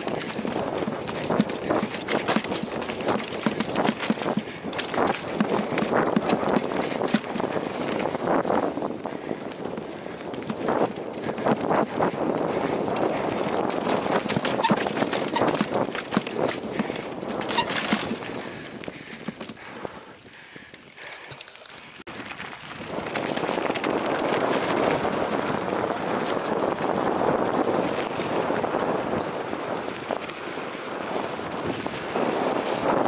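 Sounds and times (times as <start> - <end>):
rushing rolling noise: 0.0 - 18.6, 22.1 - 30.5
tyres crunching on gravel: 0.0 - 19.6
bike rattling: 0.0 - 33.0.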